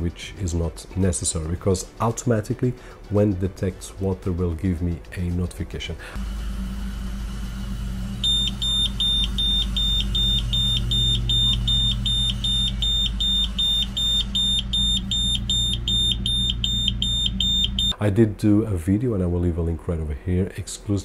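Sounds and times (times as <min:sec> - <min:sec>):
high-pitched alarm beeps: 0:08.0 - 0:18.0.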